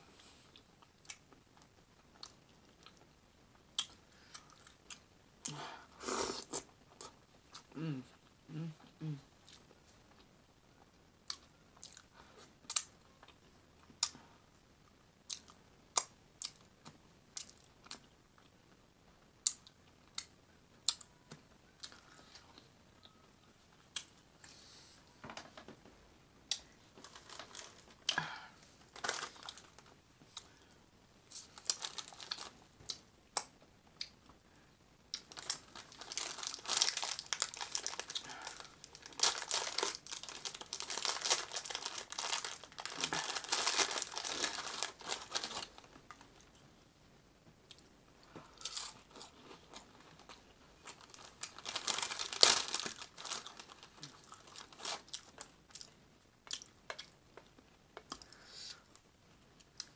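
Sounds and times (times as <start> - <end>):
paper towels crinkling and tearing: 35.3 - 46.0, 50.9 - 55.4.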